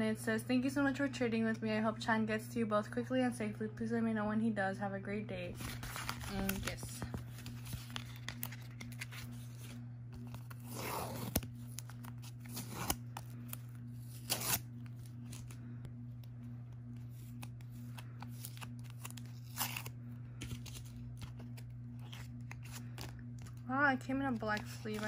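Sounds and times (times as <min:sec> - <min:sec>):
steady low hum: 0:00.0 - 0:25.0
paper and plastic rustling: 0:05.6 - 0:10.7.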